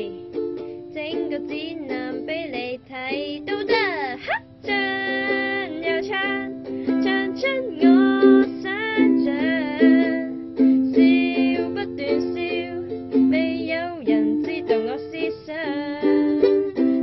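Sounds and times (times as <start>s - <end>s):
plucked string accompaniment: 0.0s - 17.0s.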